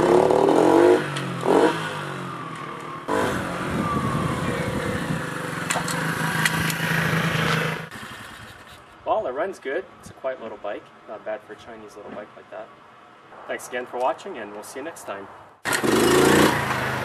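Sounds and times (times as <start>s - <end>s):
minibike engine revving: 0.0s - 8.6s, 15.6s - 17.0s.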